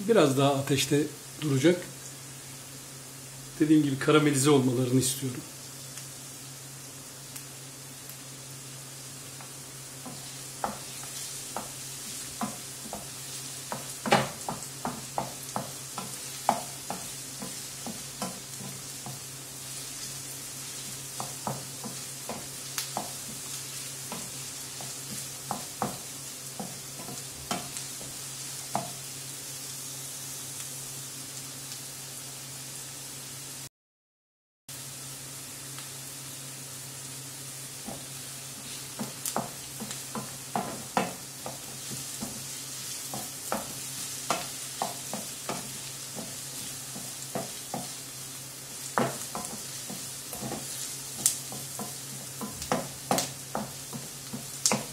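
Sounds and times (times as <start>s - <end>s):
vegetables sizzling in a frying pan: 0.0s - 33.7s, 34.7s - 54.9s
wooden spoon scraping a pan: 9.4s - 29.1s, 37.8s - 54.9s.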